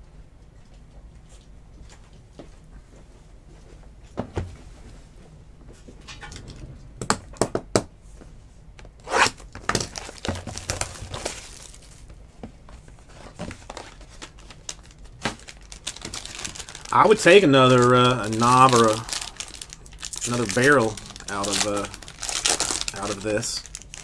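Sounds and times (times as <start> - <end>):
plastic wrap tearing and crinkling: 9.0 - 12.2, 13.2 - 24.0.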